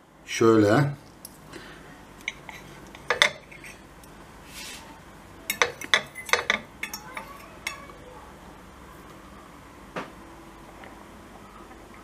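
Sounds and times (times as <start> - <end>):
knife and fork clinking on plate: 2.2 - 3.9, 5.5 - 7.9.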